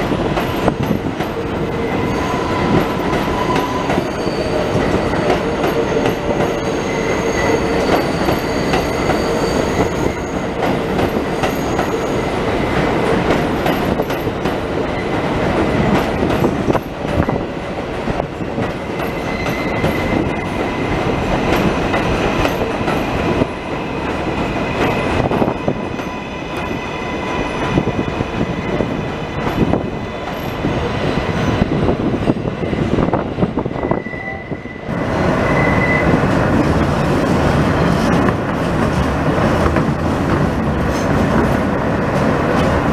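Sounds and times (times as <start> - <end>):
train wheels rumbling on rails: 0.0 - 42.9
high wheel squeal: 1.5 - 10.6, 19.0 - 20.9, 33.7 - 36.2.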